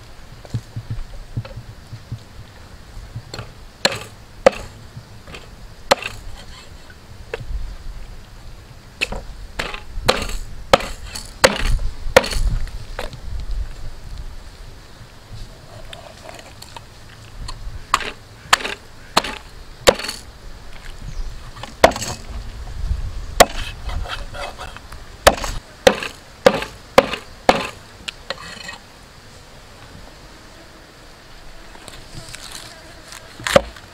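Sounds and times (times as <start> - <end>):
cleaver chopping on wooden block: 3.4 - 4.8, 5.9 - 6.2, 9.0 - 12.5, 18.0 - 20.2, 21.8 - 22.2, 23.4 - 23.7, 25.3 - 27.8.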